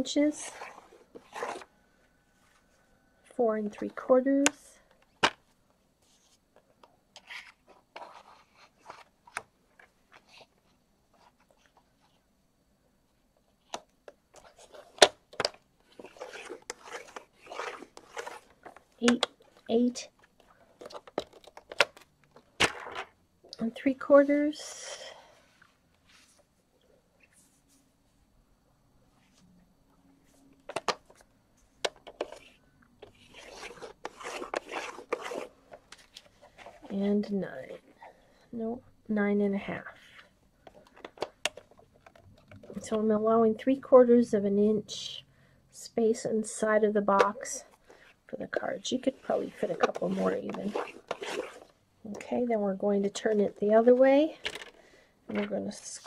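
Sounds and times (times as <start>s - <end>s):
scratchy rasps of scoring cardstock: 15.9s - 19.2s, 32.2s - 35.5s, 49.2s - 51.7s.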